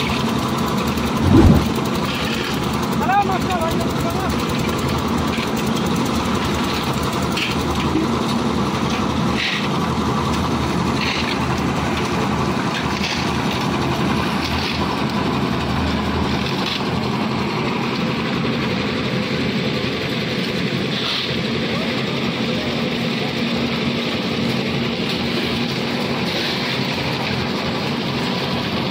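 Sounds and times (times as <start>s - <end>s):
concrete mixer engine running: 0.0s - 28.9s
short sharp sounds: 1.1s - 1.8s.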